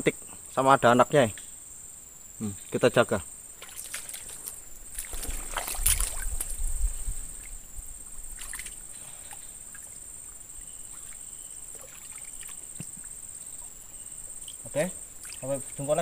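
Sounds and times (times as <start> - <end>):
high insect trill: 0.0 - 16.0
water sloshing and splashing: 3.6 - 16.0.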